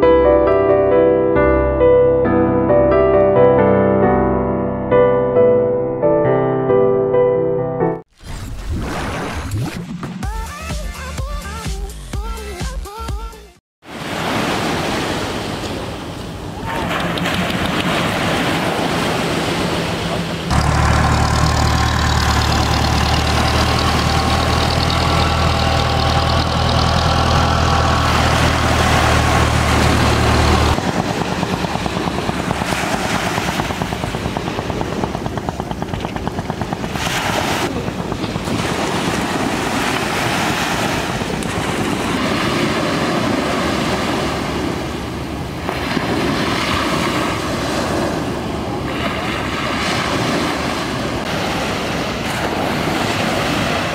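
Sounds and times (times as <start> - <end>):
waves washing onto beach: 13.8 - 53.9
small boat engine running: 16.8 - 53.7
fast even pulsing: 20.5 - 39.7.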